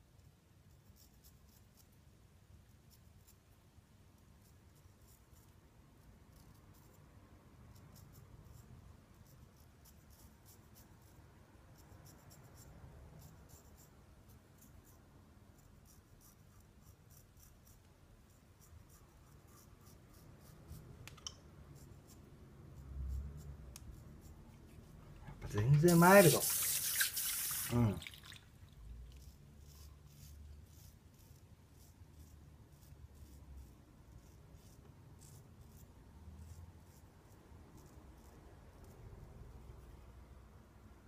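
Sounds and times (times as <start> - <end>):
razor scraping stubble: 15.8 - 27.9, 29.1 - 37.0.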